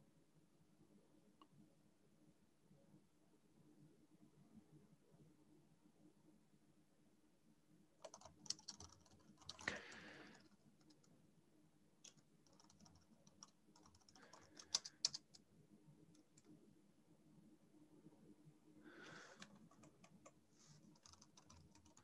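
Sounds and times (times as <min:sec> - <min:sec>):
faint keyboard typing: 0:08.0 - 0:11.2, 0:12.0 - 0:16.6, 0:19.0 - 0:22.0.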